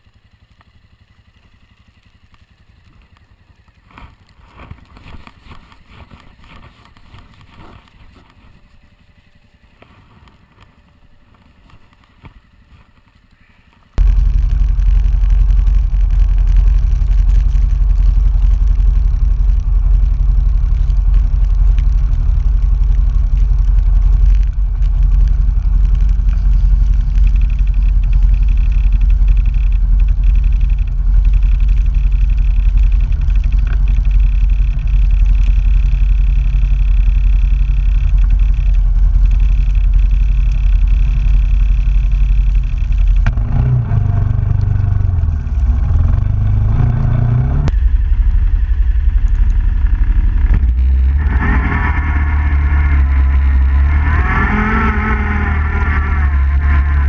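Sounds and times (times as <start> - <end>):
quad bike engine revving: 14.0 - 47.8, 49.1 - 57.0.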